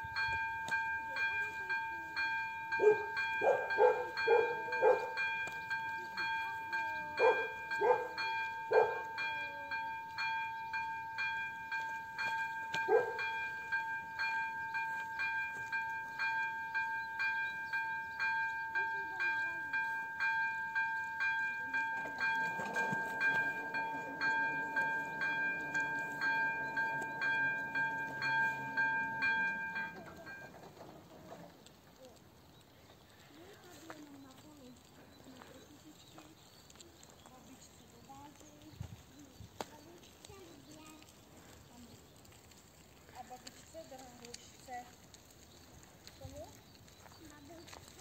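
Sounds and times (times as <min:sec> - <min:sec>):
dog barking: 0:02.8 - 0:05.2, 0:07.2 - 0:09.1, 0:12.7 - 0:13.2
level-crossing bell two-tone chime: 0:05.2 - 0:30.5.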